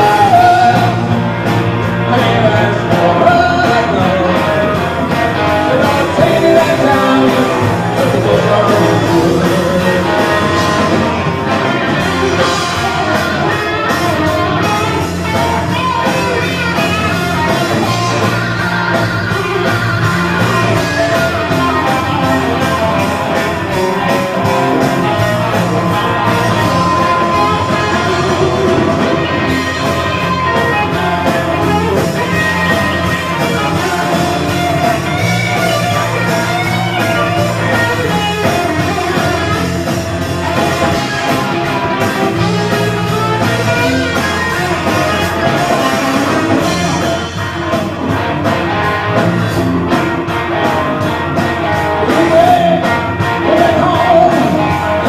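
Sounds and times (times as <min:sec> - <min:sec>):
person singing: 0:00.0 - 0:01.2, 0:01.9 - 0:11.2, 0:12.4 - 0:39.5, 0:51.7 - 0:55.0
live rock band playing: 0:00.0 - 0:55.0.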